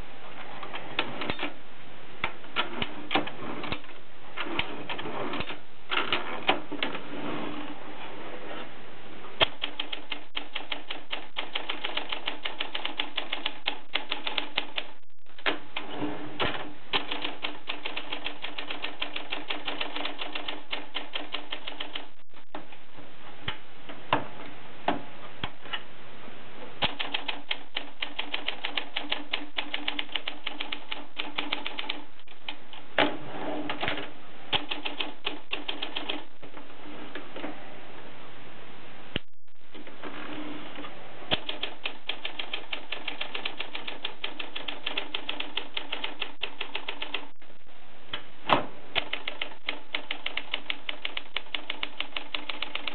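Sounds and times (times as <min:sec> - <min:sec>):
typewriter keystrokes: 0:09.4 - 0:22.1, 0:26.8 - 0:32.8, 0:34.5 - 0:36.3, 0:41.3 - 0:47.3, 0:49.0 - 0:52.9.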